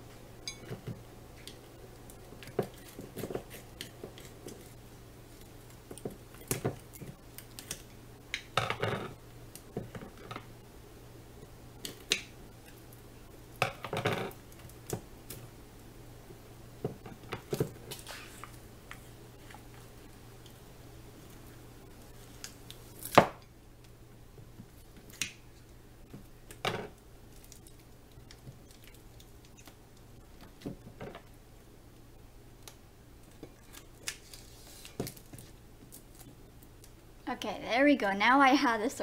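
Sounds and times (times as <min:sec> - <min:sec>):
plastic crinkling: 0:33.3 - 0:36.9.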